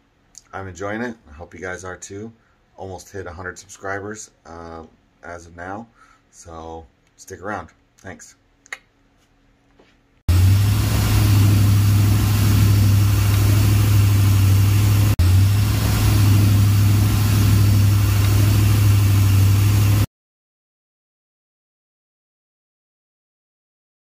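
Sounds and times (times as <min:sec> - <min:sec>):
deep boat engine drone: 0:10.3 - 0:20.1
rushing water hiss: 0:10.3 - 0:20.1.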